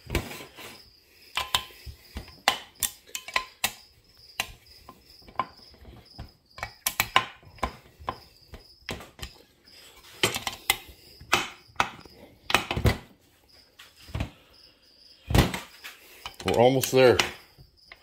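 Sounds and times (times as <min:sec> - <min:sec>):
metal parts clicking and knocking: 0:01.3 - 0:06.0, 0:06.6 - 0:08.2, 0:08.9 - 0:13.0, 0:15.5 - 0:18.0.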